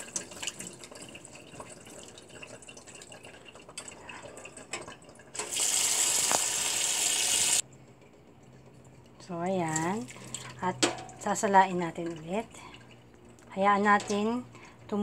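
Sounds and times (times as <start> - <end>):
tap water pouring: 0.0 - 7.6
small water splashes and drips: 9.7 - 14.2.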